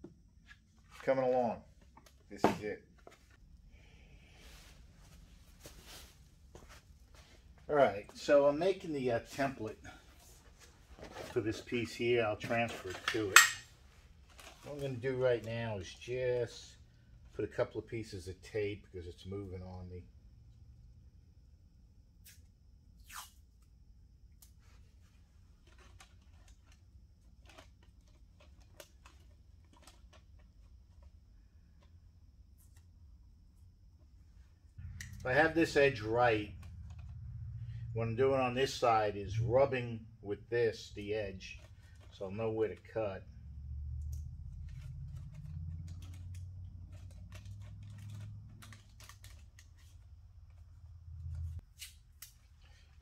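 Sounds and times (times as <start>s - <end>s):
low steady hum: 23.6s - 51.6s
paper crinkling and tapping: 27.4s - 31.1s, 44.5s - 50.7s.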